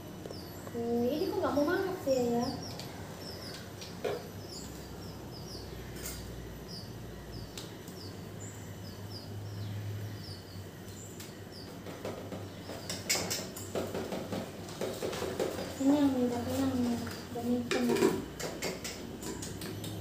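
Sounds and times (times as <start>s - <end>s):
small bird chirping: 0.2s - 13.7s.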